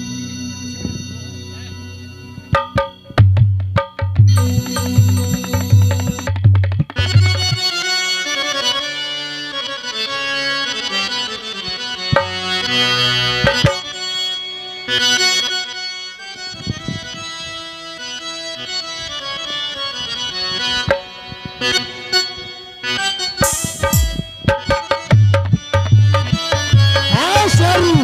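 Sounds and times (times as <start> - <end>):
harmonium melody: 0.0 - 28.0
hand drum strokes: 2.5 - 7.7, 23.4 - 28.0.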